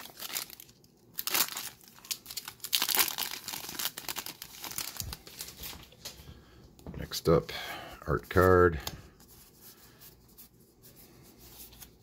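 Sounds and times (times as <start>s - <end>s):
foil wrapper crinkling: 0.0s - 6.1s.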